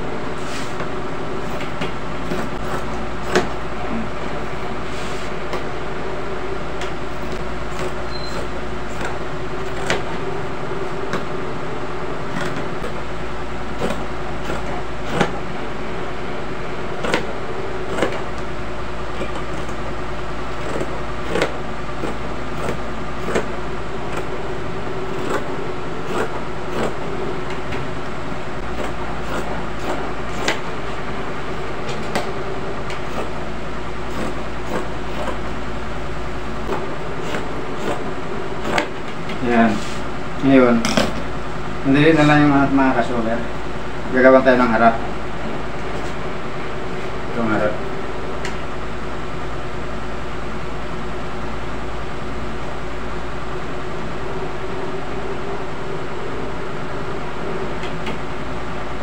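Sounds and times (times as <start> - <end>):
machine hum: 0.0 - 59.0
scissors cutting fabric: 13.8 - 15.4, 17.0 - 17.3, 17.9 - 18.2, 20.5 - 23.5, 25.1 - 25.5, 26.1 - 27.0, 28.7 - 30.6, 34.1 - 35.4, 36.7 - 38.9.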